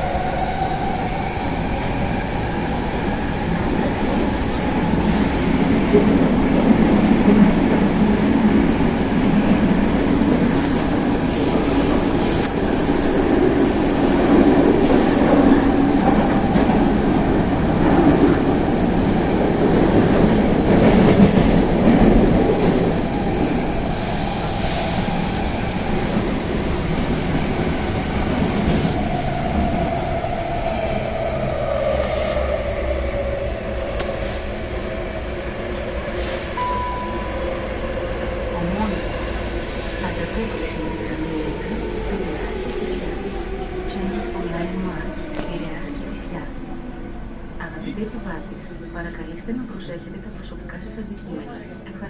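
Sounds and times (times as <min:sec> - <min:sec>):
train rumble and track noise: 0:00.0 - 0:52.0.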